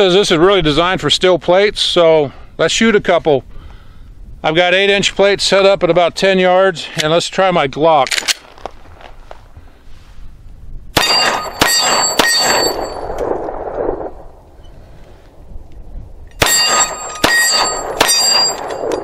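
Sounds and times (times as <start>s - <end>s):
steel plate clanging: 11.0s - 13.0s, 16.4s - 19.0s
pistol shots: 11.0s - 13.4s, 16.4s - 19.0s.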